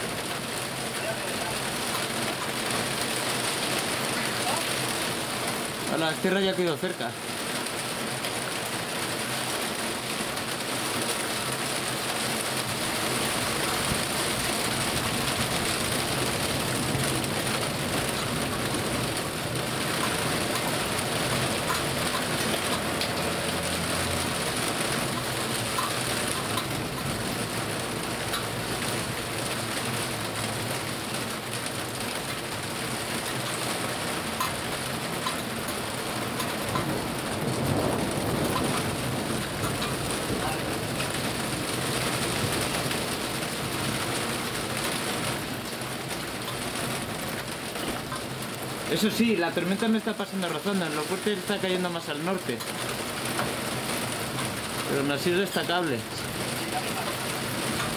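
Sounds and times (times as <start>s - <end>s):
heavy rain pouring: 0.0s - 57.9s
distant thunder rumble: 12.7s - 29.3s, 34.4s - 45.3s.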